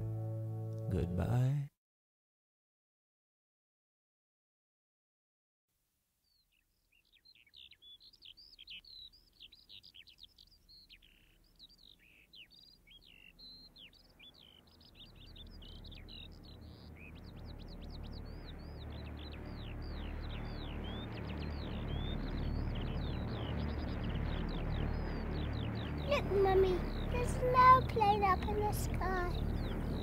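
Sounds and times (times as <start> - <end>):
small birds chirping: 6.2 - 30.0
low rumble: 15.2 - 30.0.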